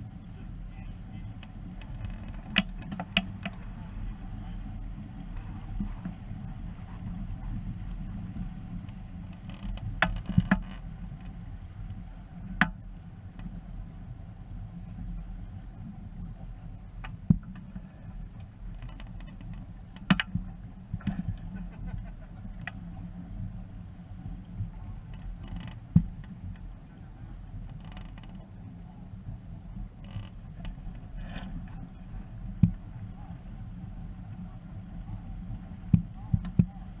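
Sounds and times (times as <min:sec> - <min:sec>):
wind and water past a hull: 0:00.0 - 0:37.0
rigging knocks and clicks: 0:01.8 - 0:03.6, 0:09.4 - 0:10.8, 0:18.7 - 0:21.4, 0:25.1 - 0:26.3, 0:35.9 - 0:36.7.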